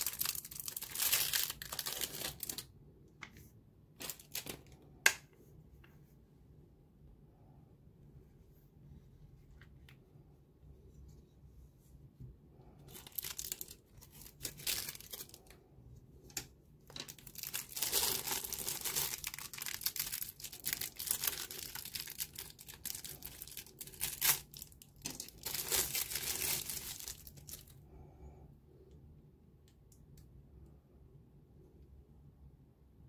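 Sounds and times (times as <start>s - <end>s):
plastic wrap crinkling and tearing: 0.0s - 2.7s, 4.0s - 4.8s, 12.9s - 15.6s, 16.9s - 27.8s.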